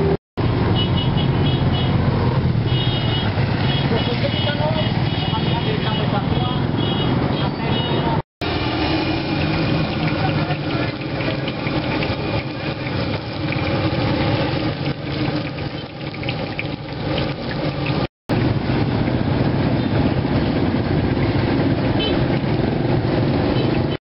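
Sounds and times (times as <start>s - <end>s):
hot oil sizzling in a wok: 8.4s - 19.6s.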